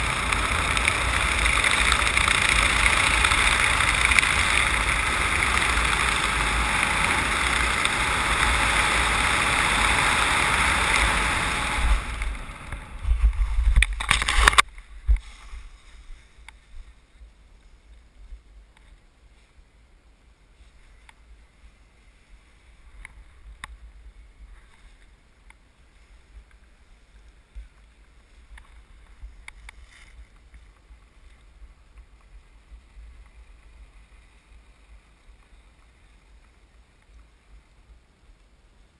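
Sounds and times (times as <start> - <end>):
wind rushing over microphone: 0.0 - 16.2
faint rustling: 10.6 - 37.8.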